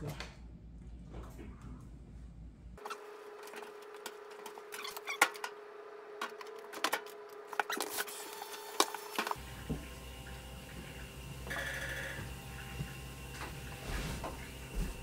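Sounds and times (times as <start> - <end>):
clothes dropped into washing machine: 13.3 - 15.0.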